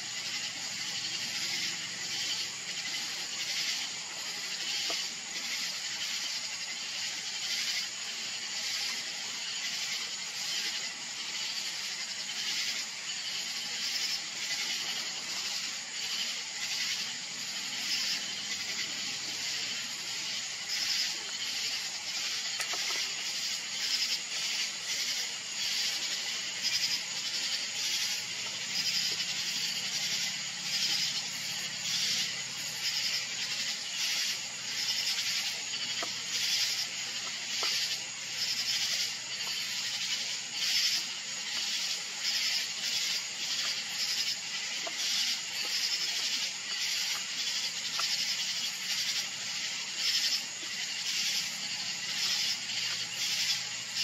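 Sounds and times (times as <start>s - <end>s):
night insects chirping: 0.0s - 54.0s.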